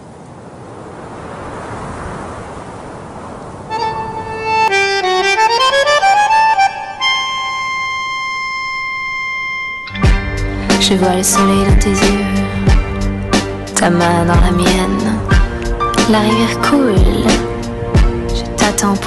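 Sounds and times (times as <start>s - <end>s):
sustained instrument notes: 3.7s - 13.6s.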